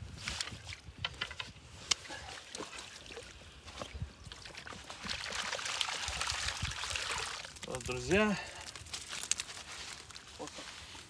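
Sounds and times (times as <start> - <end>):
small water splashes: 1.8 - 10.6
water pouring out of a net: 4.6 - 10.4.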